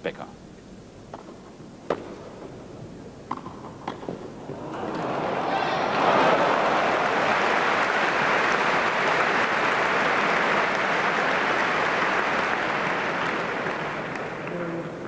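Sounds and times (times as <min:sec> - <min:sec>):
spectators applauding: 0:04.4 - 0:15.0.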